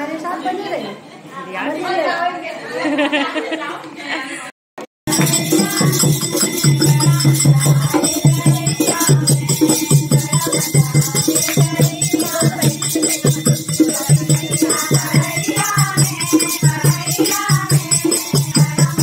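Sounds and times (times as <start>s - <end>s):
group singing: 5.1s - 19.0s
hand drum rhythm: 5.1s - 19.0s
jingling hand percussion: 5.1s - 19.0s.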